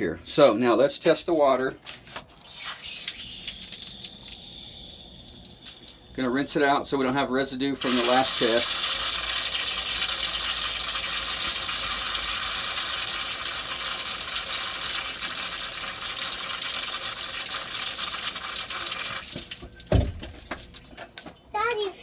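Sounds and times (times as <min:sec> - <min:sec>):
water gushing from hose spigot: 0:02.4 - 0:06.4, 0:07.8 - 0:20.0
water splashing over vial: 0:07.8 - 0:20.0.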